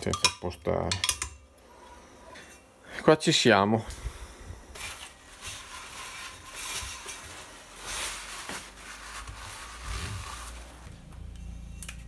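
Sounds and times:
cloth rag rubbing on metal: 0:04.8 - 0:10.9.

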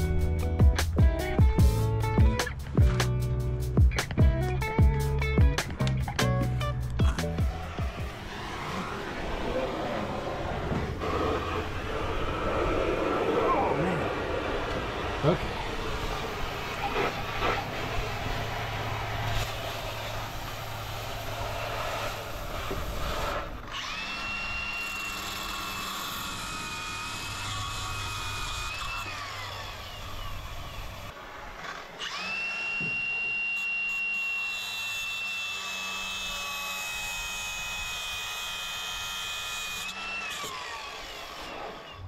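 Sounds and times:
cut-off tool cutting steel: 0:15.2 - 0:42.0.

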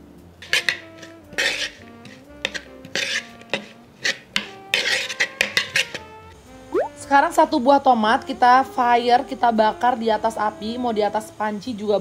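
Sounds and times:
soft background music: 0:00.0 - 0:12.0
spoon scraping wooden bowl: 0:00.4 - 0:06.1.

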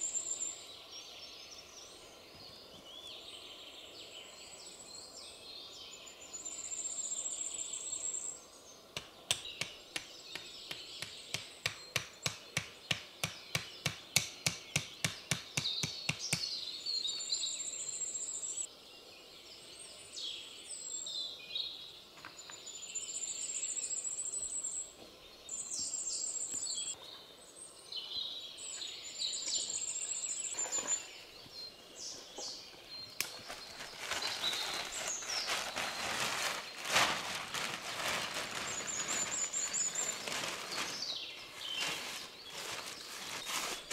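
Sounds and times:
wooden stake being hammered: 0:09.0 - 0:16.5.

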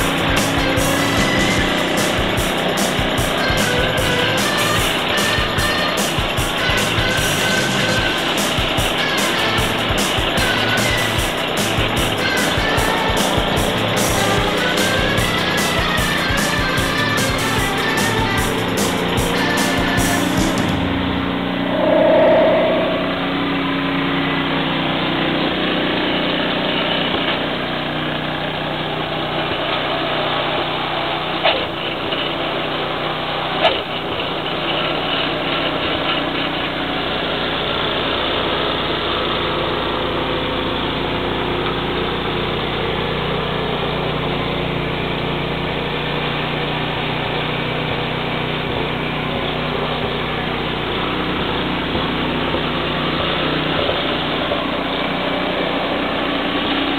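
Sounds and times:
snowblower engine running: 0:00.0 - 0:21.7, 0:23.4 - 0:56.9
short tone: 0:21.4 - 0:24.2.

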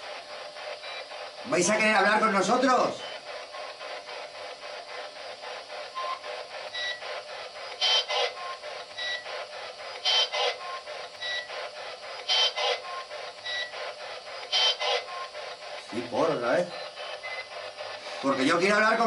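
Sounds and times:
looped noisy voice fragment: 0:01.4 - 0:03.7, 0:14.4 - 0:17.2, 0:17.8 - 0:19.0.

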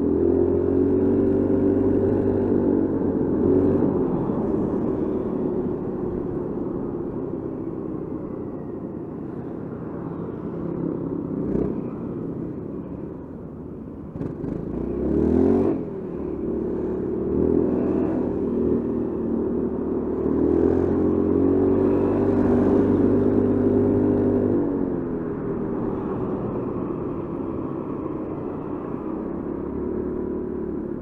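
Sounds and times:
road and wind noise: 0:00.0 - 0:31.0.

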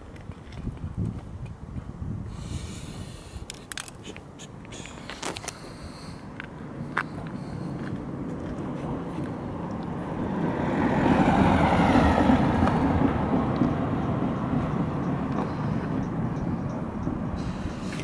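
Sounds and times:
vehicle passing by: 0:06.0 - 0:18.0.

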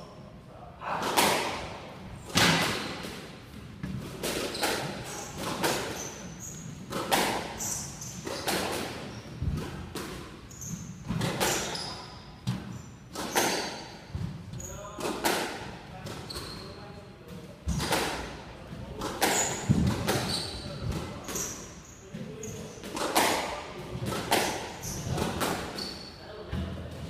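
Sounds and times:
racket striking squash ball: 0:01.0 - 0:16.5, 0:17.6 - 0:21.7, 0:22.5 - 0:26.0
shoes squeaking on wooden floor: 0:10.5 - 0:15.0, 0:16.2 - 0:16.8, 0:19.3 - 0:22.8.

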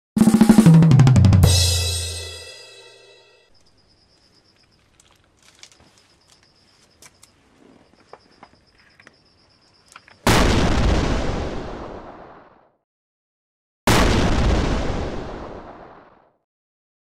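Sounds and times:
high insect trill: 0:03.4 - 0:10.2
beetles crawling over soil: 0:03.6 - 0:10.2
explosion sound effect: 0:10.3 - 0:12.7, 0:13.9 - 0:16.3.

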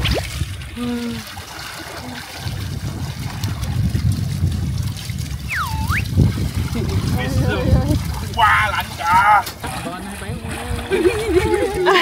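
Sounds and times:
water splashing and churning: 0:00.0 - 0:12.0
sliding whistle-like tone: 0:05.5 - 0:06.1.

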